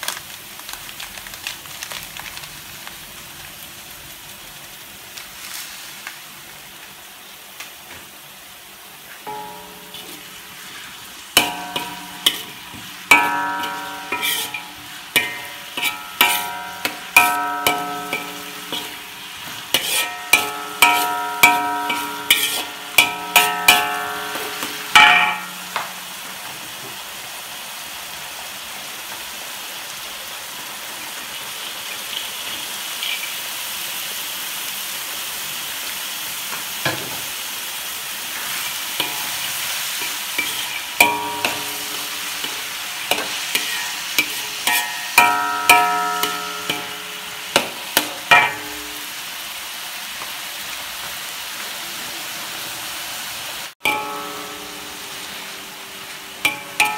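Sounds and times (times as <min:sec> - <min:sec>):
vegetables sizzling: 0:00.0 - 0:56.9
metal spatula striking a wok: 0:09.3 - 0:26.6, 0:38.4 - 0:49.2, 0:53.8 - 0:56.9.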